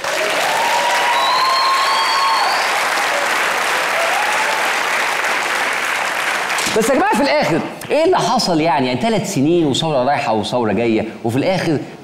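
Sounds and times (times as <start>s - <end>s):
audience cheering: 0.0s - 6.7s
audience applauding: 0.0s - 7.2s.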